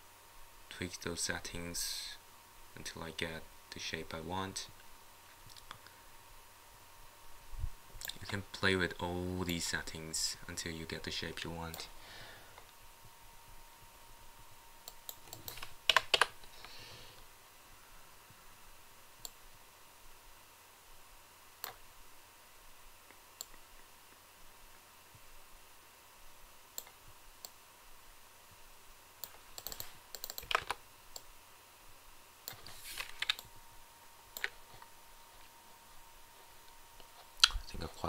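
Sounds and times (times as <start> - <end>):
faint steady hum: 0.0 - 38.0
computer mouse and keyboard clicks: 14.9 - 16.4, 29.2 - 31.3, 32.5 - 33.5, 34.4 - 34.8.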